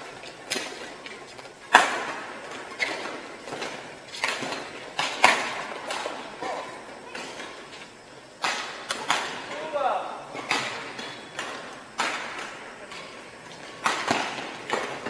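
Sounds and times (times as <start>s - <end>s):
rackets striking shuttlecock: 8.4s - 15.0s.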